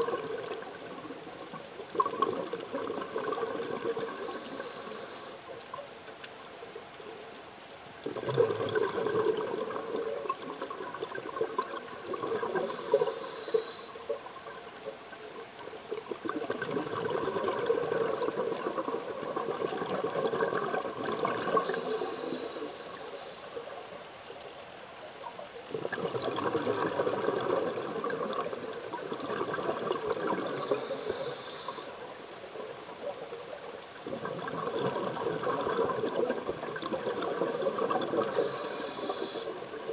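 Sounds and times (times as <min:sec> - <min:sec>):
diver inhaling through regulator: 0:04.0 - 0:05.4, 0:12.5 - 0:14.0, 0:21.6 - 0:23.7, 0:30.4 - 0:32.0, 0:38.2 - 0:39.6
bubbling exhalation: 0:08.0 - 0:12.7.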